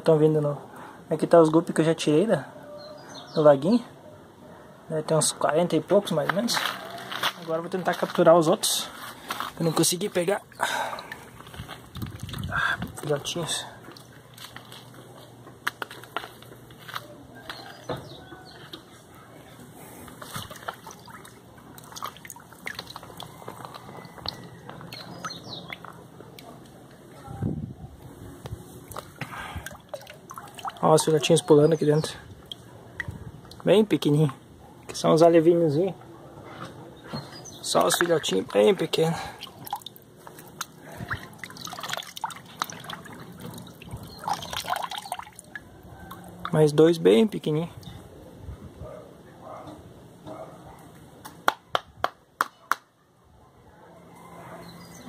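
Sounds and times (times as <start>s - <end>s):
pond water sloshing: 9.0s - 14.9s, 20.0s - 26.8s, 28.8s - 33.7s, 37.6s - 46.6s
plastic sieve scooping water: 20.2s - 23.8s, 39.3s - 45.6s
small splashes and drips: 20.3s - 25.1s, 28.8s - 31.3s, 32.4s - 33.7s, 37.8s - 46.6s.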